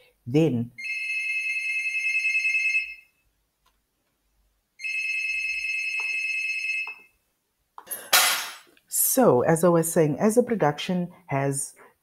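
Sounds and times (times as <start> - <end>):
electronic telephone ringing: 0.8 - 3.2, 4.8 - 7.2
people talking: 8.9 - 11.8.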